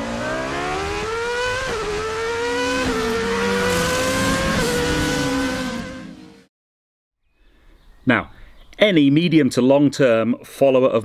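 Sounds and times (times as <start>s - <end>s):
car engine accelerating: 0.0s - 6.5s.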